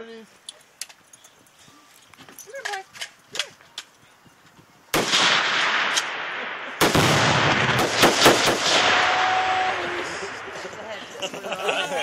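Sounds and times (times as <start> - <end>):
sharp cracks: 4.9 - 10.5
loud explosion blasts: 4.9 - 10.6.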